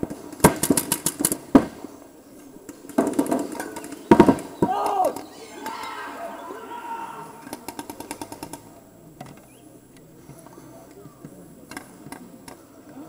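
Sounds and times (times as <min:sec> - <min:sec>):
paintball markers firing: 0:00.3 - 0:01.7, 0:07.5 - 0:09.5
voices murmuring: 0:01.2 - 0:13.0.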